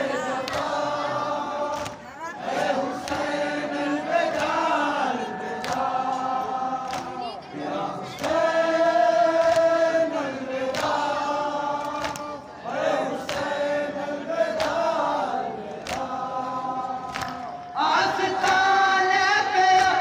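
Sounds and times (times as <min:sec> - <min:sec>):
men chanting in unison: 0:00.0 - 0:20.0
hands slapping chests: 0:01.7 - 0:02.0, 0:03.0 - 0:03.4, 0:04.3 - 0:04.6, 0:05.6 - 0:06.0, 0:06.8 - 0:07.2, 0:09.4 - 0:09.7, 0:10.7 - 0:11.0, 0:11.8 - 0:12.4, 0:13.1 - 0:13.6, 0:14.5 - 0:14.9, 0:15.8 - 0:16.2, 0:17.0 - 0:17.7.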